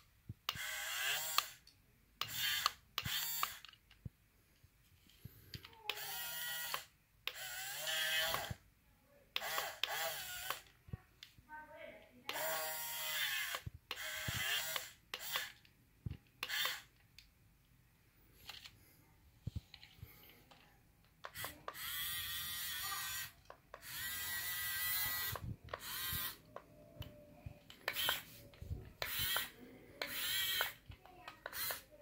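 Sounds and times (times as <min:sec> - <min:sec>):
toy electric motors whirring: 0:00.5 - 0:03.8, 0:05.5 - 0:08.6, 0:09.4 - 0:10.8, 0:12.3 - 0:15.7, 0:16.4 - 0:17.0, 0:21.2 - 0:32.0.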